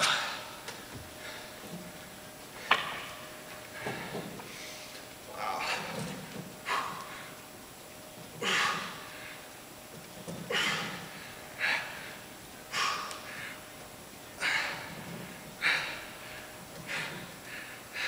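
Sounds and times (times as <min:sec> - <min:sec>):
man breathing hard: 0:00.0 - 0:01.8, 0:03.6 - 0:07.4, 0:08.4 - 0:09.5, 0:10.5 - 0:13.8, 0:14.4 - 0:18.0.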